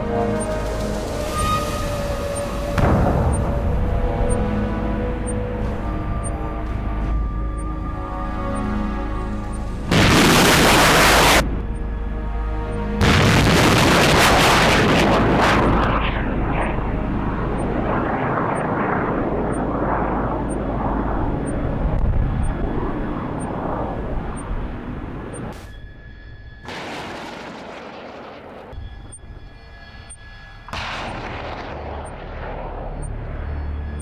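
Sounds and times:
wavering rumble of missile: 0.0 - 7.1, 9.8 - 11.8, 13.0 - 34.0
rocket launch blast: 9.9 - 11.4, 13.0 - 16.6.

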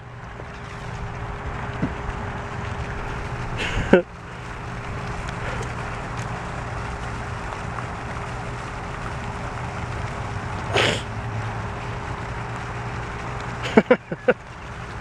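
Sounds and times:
faint hum: 0.0 - 15.0
low outdoor rumble: 0.0 - 15.0.

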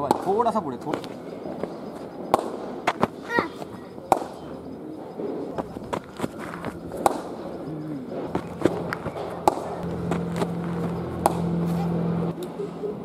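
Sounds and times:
steady low hum: 0.0 - 13.0
ball hitting pitch: 2.3 - 4.6, 5.6 - 7.4, 8.2 - 11.9
cricket bat striking ball: 2.3 - 4.6, 5.6 - 7.4, 8.2 - 11.6.

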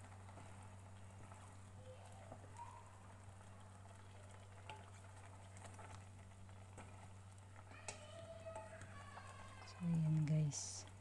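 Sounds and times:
food simmering in a pot: 0.0 - 11.0
spoon tapping and scraping pot: 3.6 - 6.0.

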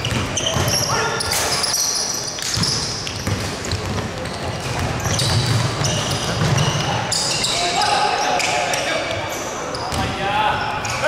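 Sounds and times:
basketball bouncing: 0.0 - 0.8, 2.4 - 7.0
sneakers squeaking: 0.0 - 11.0.

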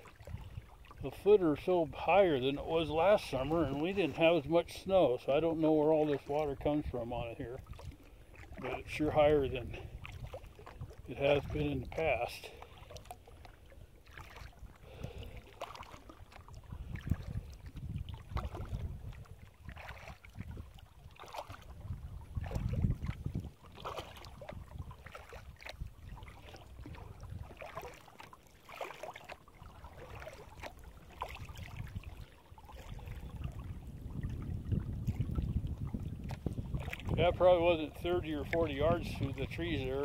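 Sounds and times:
low uneven rumble: 0.0 - 23.6
paddle splashing in water: 0.0 - 40.0.

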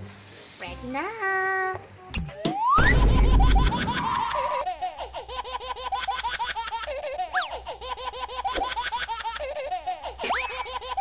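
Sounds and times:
cartoon laughter chirps: 2.8 - 11.0.

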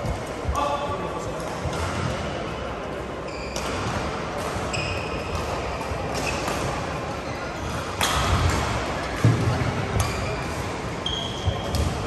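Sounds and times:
shoes squeaking on court mats: 3.2 - 3.9, 4.6 - 7.8, 10.0 - 11.8
racket hitting shuttlecock: 3.5 - 7.0, 7.7 - 10.7.

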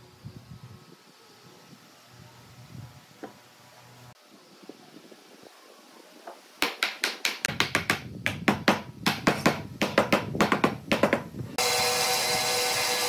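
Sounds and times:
sharp wooden taps: 6.6 - 11.3.

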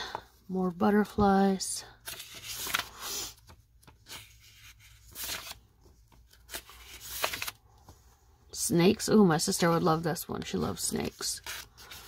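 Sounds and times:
paper sheets swishing and rustling: 2.1 - 8.0.

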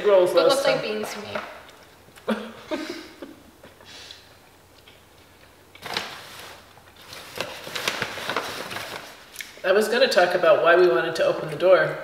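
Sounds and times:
food wrapper rustling: 4.8 - 9.6.

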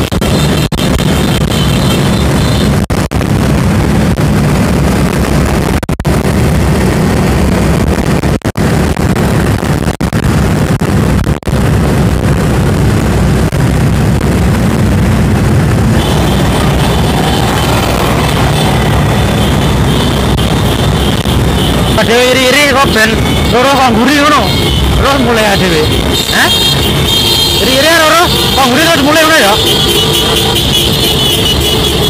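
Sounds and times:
wind rumble on microphone: 0.0 - 22.0
motorcycle engines: 0.0 - 32.0.

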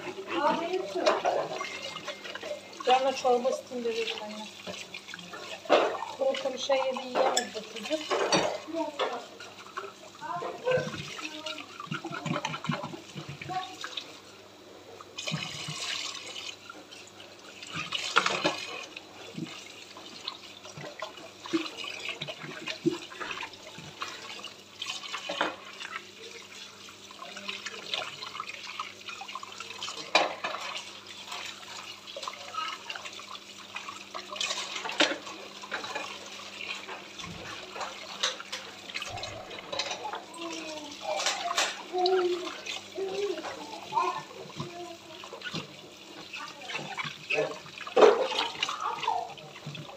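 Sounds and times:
water splashing: 0.0 - 14.2, 15.1 - 49.9
knocks and clinks of dishes: 7.1 - 9.2.

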